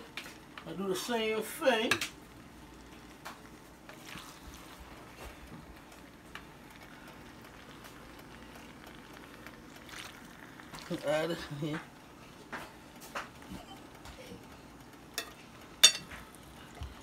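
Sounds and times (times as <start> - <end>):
low steady hum: 0.0 - 17.0
utensil clicking against a skillet: 5.0 - 17.0.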